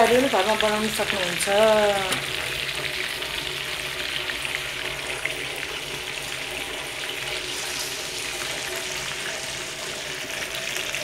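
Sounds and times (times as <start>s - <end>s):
chicken frying in hot oil: 0.0s - 11.0s.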